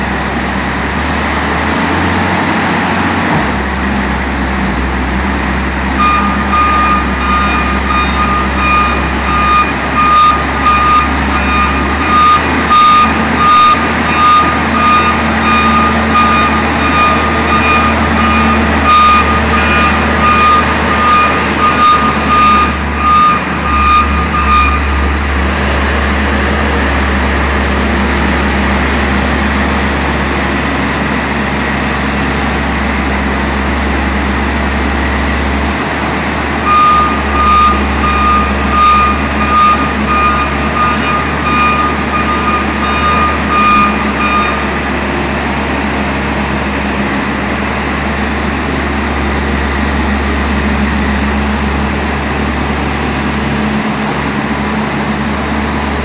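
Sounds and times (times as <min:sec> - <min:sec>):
diesel engine running under load: 0:00.0 - 0:56.0
backup alarm beeping: 0:06.0 - 0:25.2, 0:36.6 - 0:44.8.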